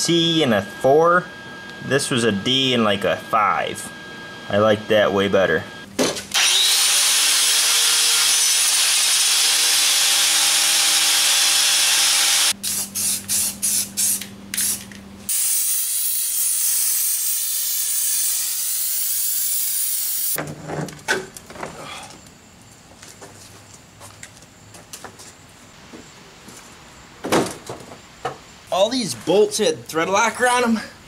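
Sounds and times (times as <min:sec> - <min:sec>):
angle grinder grinding metal: 0:06.3 - 0:20.4
aerosol spray can hissing: 0:12.6 - 0:20.4.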